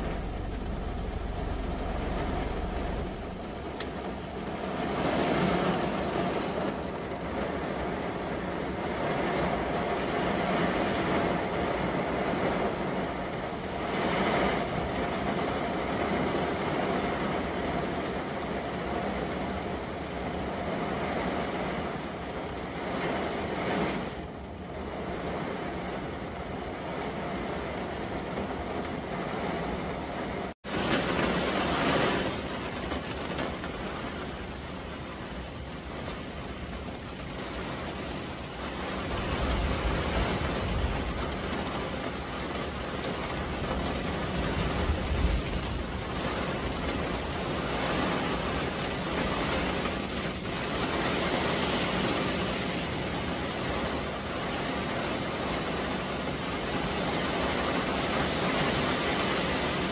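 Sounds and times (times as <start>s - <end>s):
deep rumble: 0.0s - 5.1s
heavy rain on car roof: 0.0s - 59.9s.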